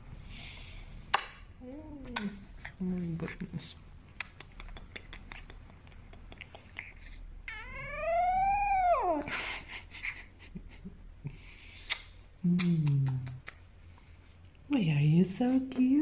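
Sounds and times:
wet licking clicks: 4.1s - 7.0s, 11.9s - 13.6s
puppy whining yawn: 7.5s - 9.3s.

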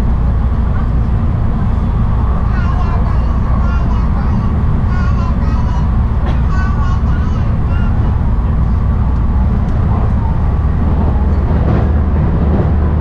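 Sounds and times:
train wheels rumbling on rails: 0.0s - 13.0s.

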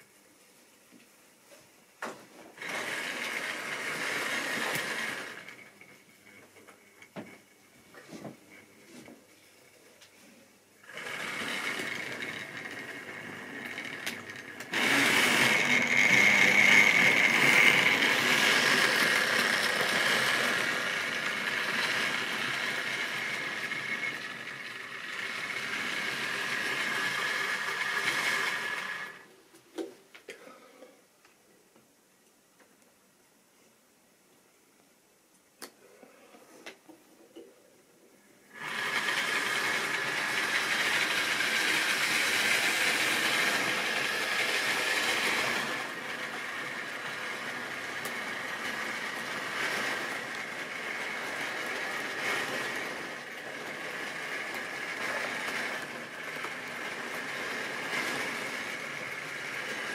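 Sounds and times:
model train motor whining: 2.6s - 5.8s, 10.8s - 29.3s, 38.5s - 59.9s
wheels rattling on rails: 10.9s - 29.2s, 38.6s - 59.9s.

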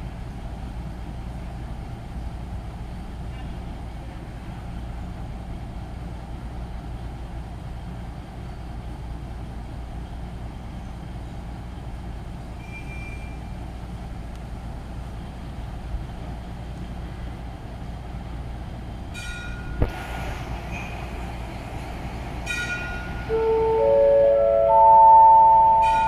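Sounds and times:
brief high tone: 23.3s - 26.0s.

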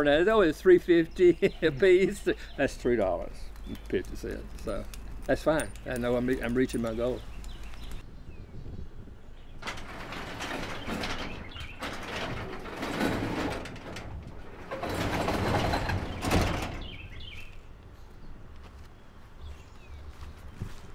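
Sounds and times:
bird chirping: 0.0s - 10.0s, 10.6s - 12.2s, 15.7s - 20.8s
garage door rumbling down tracks: 9.5s - 17.4s
garage door closing thud: 9.6s - 17.2s.

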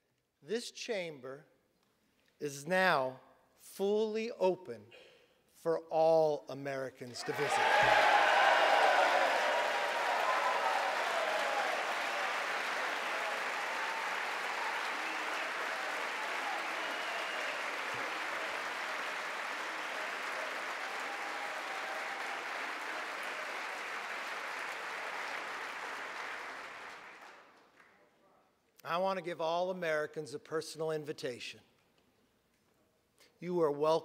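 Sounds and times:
crowd applause: 7.2s - 27.9s.

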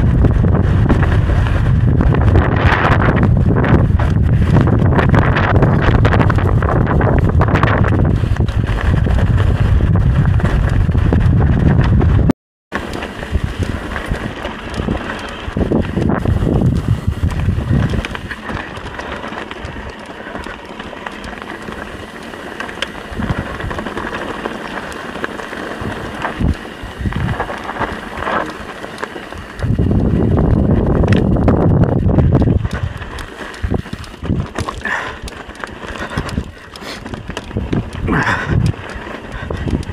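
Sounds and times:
bike knocks and rattles: 0.0s - 39.9s
wind buffeting microphone: 0.0s - 39.9s.

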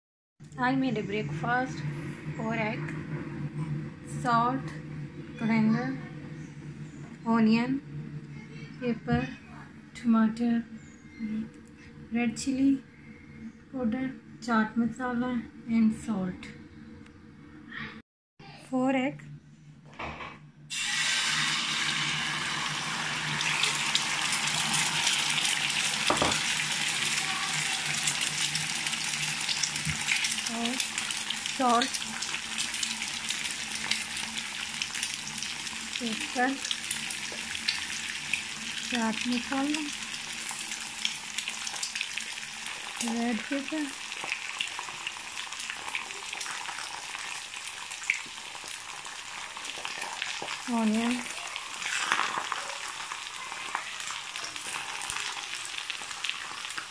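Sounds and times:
eggs sizzling in hot oil: 20.7s - 56.9s.

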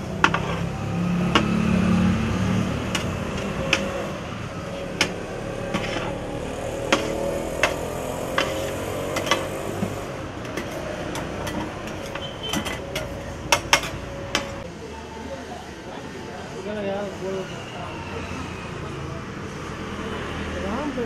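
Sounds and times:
metal spatulas clanking on wok: 0.2s - 0.7s, 2.8s - 4.1s, 6.8s - 9.5s, 10.4s - 14.6s.

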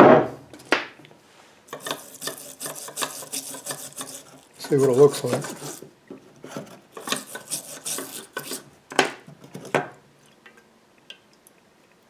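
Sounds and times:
brush scraping in metal can: 1.7s - 8.7s.

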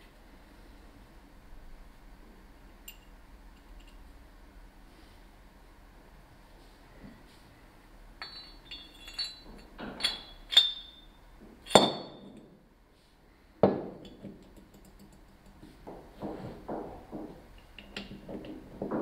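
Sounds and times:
metallic clinks: 2.8s - 4.1s, 8.2s - 12.5s.

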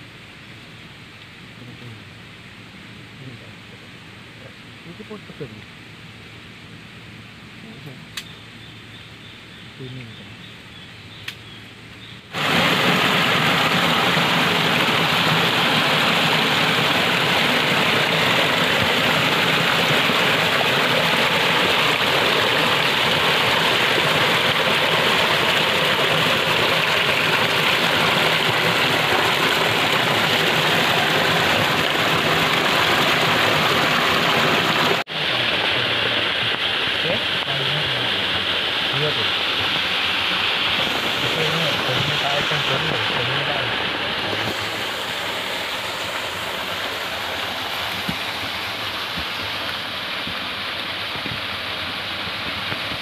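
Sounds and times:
water splashing into pool: 12.3s - 53.0s
waterfall rushing over rocks: 12.3s - 53.0s.

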